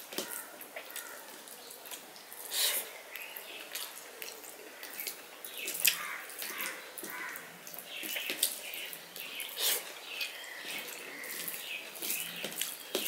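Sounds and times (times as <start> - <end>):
fingers squelching wet food: 3.1 - 13.0.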